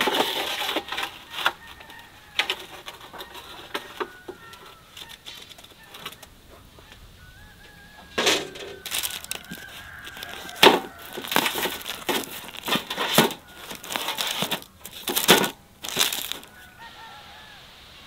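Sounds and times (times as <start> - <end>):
bread and paper crackling: 0.0 - 6.3, 8.8 - 16.8.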